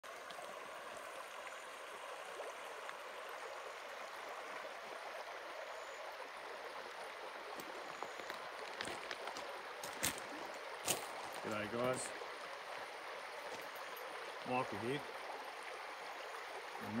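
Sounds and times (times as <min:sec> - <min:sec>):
creek water flowing: 0:00.0 - 0:17.0.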